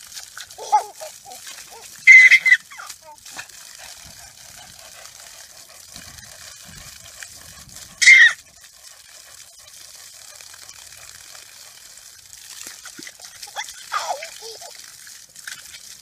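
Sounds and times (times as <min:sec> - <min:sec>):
garden hose spraying water: 0:00.0 - 0:16.0
child squealing: 0:00.6 - 0:03.2, 0:08.0 - 0:08.4.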